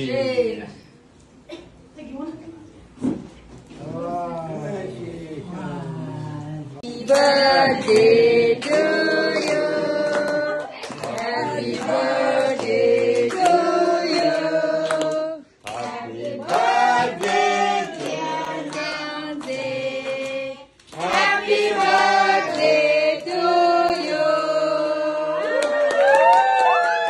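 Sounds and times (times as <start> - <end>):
group of voices singing: 6.8 - 25.6
hands clapping: 7.1 - 13.6, 25.4 - 27.0.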